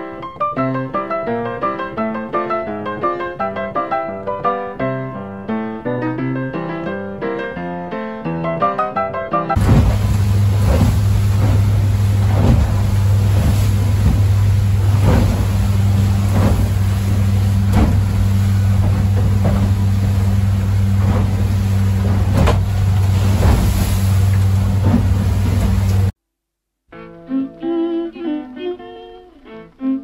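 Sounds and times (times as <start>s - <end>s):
hull pounding into waves: 9.6s - 26.1s
motorboat engine droning: 9.6s - 26.1s
spray splashing on windshield: 9.6s - 26.1s.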